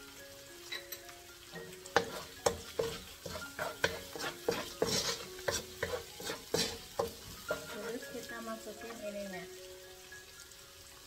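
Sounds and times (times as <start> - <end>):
light sizzle of frying: 0.0 - 11.0
wooden spatula scraping wok: 1.9 - 9.0.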